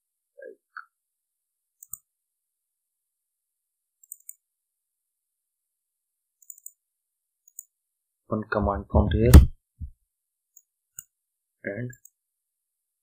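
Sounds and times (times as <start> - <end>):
faint computer mouse clicks: 1.8 - 2.1, 4.0 - 4.4, 6.4 - 6.8.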